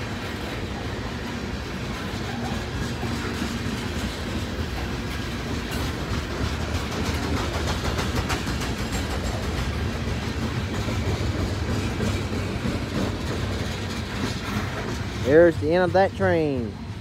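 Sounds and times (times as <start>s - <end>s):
steel wheels rumbling on rails: 0.0s - 17.0s
clicks over rail joints: 2.0s - 15.5s.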